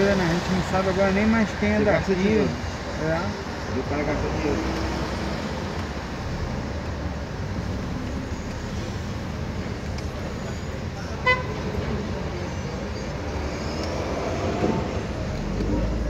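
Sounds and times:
car road and engine noise: 0.0 - 16.0
car horn beep: 11.1 - 11.6.

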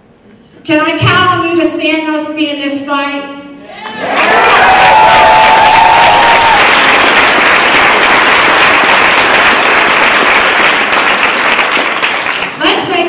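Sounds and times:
audience applauding and cheering: 3.8 - 12.6.

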